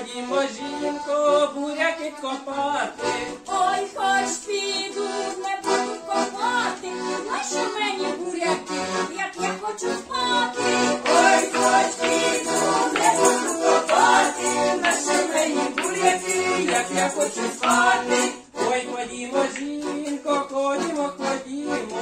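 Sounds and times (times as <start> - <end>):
accordion playing folk tune: 0.0 - 22.0
maracas shaken: 11.1 - 18.3.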